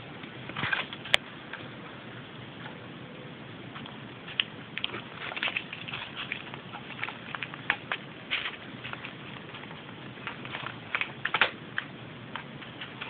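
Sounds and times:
paper rustling and crinkling: 0:04.3 - 0:11.6.

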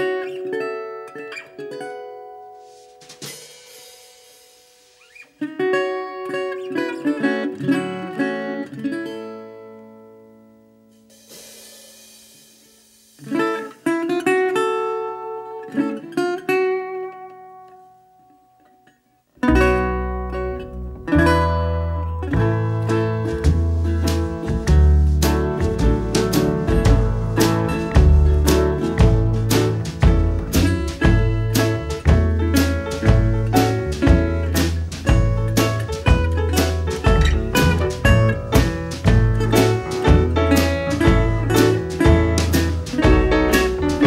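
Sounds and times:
plucked guitar tune: 0:00.0 - 0:11.5, 0:13.0 - 0:44.0
full band arrangement with bass: 0:19.5 - 0:44.0.

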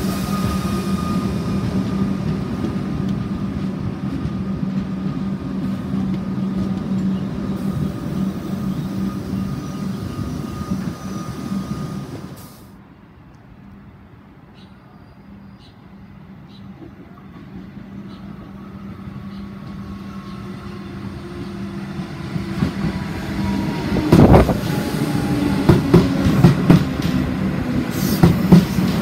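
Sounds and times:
electric train passing: 0:00.0 - 0:14.6, 0:15.3 - 0:29.0.

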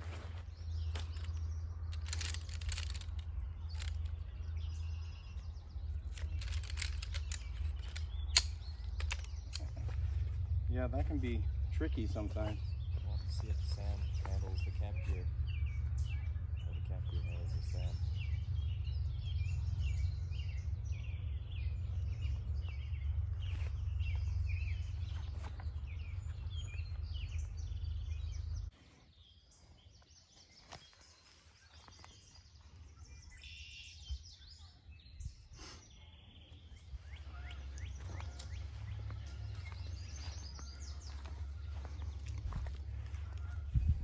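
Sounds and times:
birds chirping and singing: 0:00.0 - 0:44.0
wind rumble on microphone: 0:36.8 - 0:44.0.

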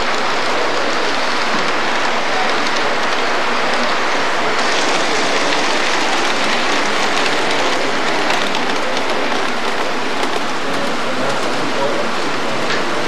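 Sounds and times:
wheels ticking over rail joints: 0:00.0 - 0:11.6
model train rolling on track: 0:00.0 - 0:13.0
loud hiss: 0:04.6 - 0:08.1.

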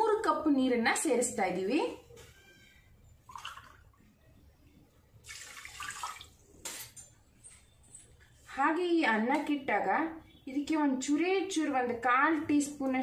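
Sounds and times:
water splashing into pot: 0:03.3 - 0:03.8, 0:05.2 - 0:06.4.

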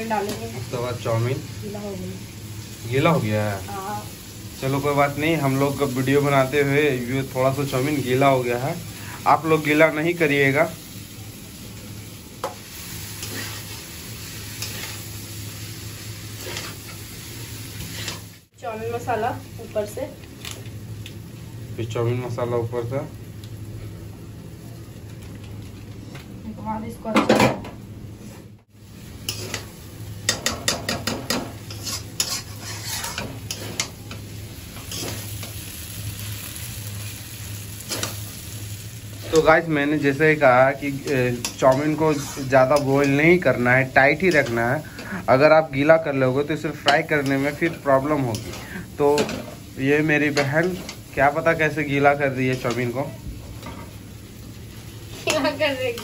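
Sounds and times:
noodles sizzling in a pan: 0:00.0 - 0:27.1, 0:28.6 - 0:56.0
spatula scraping a metal pan: 0:13.2 - 0:13.8, 0:30.3 - 0:33.9, 0:41.4 - 0:42.9.

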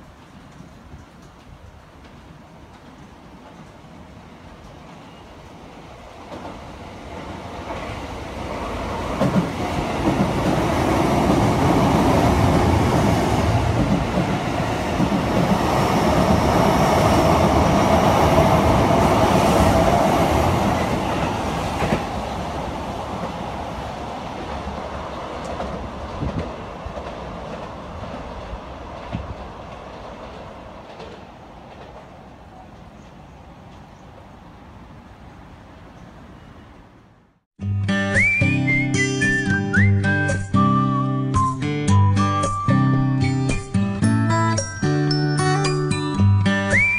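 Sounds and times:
wheels on rail: 0:00.0 - 0:37.3
electric train passing at speed: 0:00.0 - 0:37.4.

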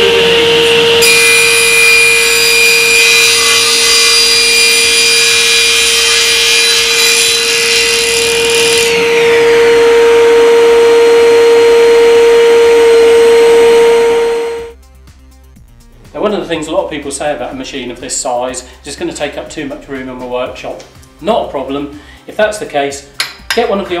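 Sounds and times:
dust extractor running: 0:00.0 - 0:01.1, 0:08.9 - 0:14.7
saw blade whining freely: 0:00.0 - 0:14.7
table saw cutting board: 0:00.0 - 0:14.7.

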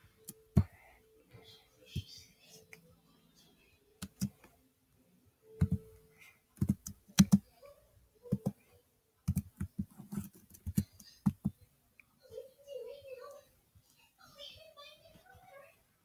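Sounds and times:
computer keyboard key clicks: 0:06.6 - 0:07.4.

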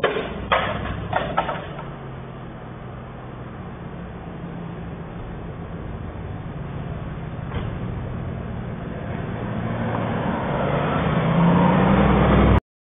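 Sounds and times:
car passing fast: 0:06.6 - 0:12.6.

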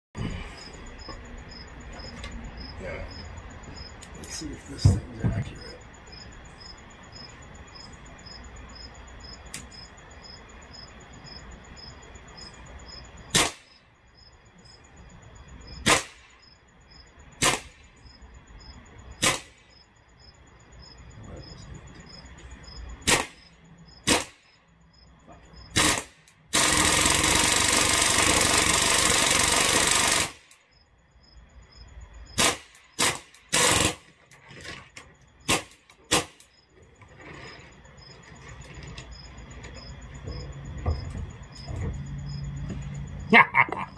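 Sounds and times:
air rifle full-auto burst: 0:13.3 - 0:13.7, 0:15.8 - 0:16.3, 0:19.2 - 0:19.6, 0:23.0 - 0:23.4, 0:24.0 - 0:24.4, 0:25.7 - 0:30.6, 0:32.4 - 0:34.1
air rifle shots: 0:13.3 - 0:13.7, 0:15.8 - 0:16.4, 0:17.4 - 0:17.9, 0:19.2 - 0:19.7, 0:23.0 - 0:23.4, 0:24.0 - 0:24.5, 0:25.7 - 0:30.6, 0:32.4 - 0:34.1, 0:35.5 - 0:36.5.

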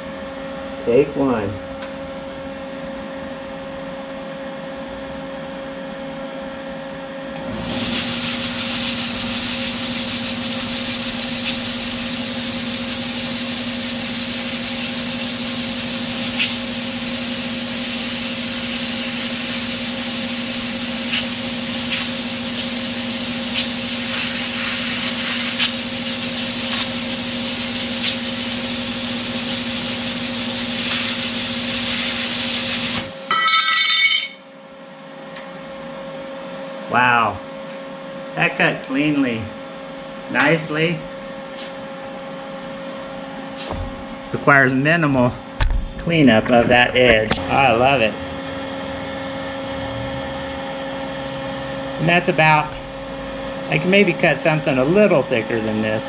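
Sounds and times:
plasma cutter humming: 0:07.4 - 0:34.3
plasma arc cutting hiss: 0:07.6 - 0:33.3.

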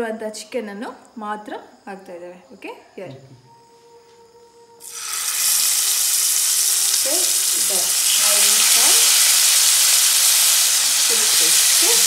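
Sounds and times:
chicken sizzling in a pan: 0:04.8 - 0:12.0.

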